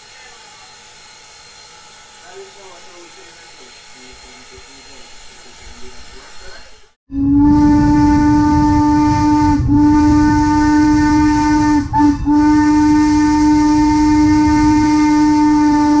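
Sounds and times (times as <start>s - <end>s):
steam hissing: 0.0s - 6.9s, 8.2s - 16.0s
steam whistle blasts: 7.1s - 16.0s.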